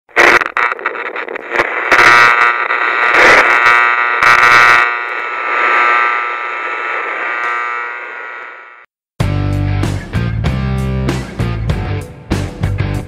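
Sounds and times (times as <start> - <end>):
electronic buzzing tone: 0.2 - 8.9.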